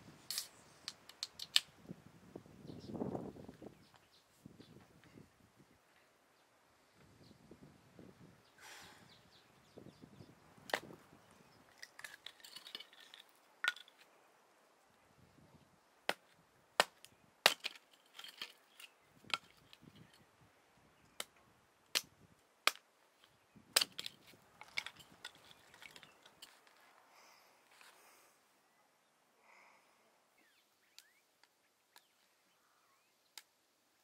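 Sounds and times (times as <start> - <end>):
sharp snaps and cracks: 0.3 - 1.8, 10.6 - 11.0, 11.6 - 14.1, 16.0 - 20.2, 21.1 - 26.8
soft crunching and crackling: 22.7 - 28.2.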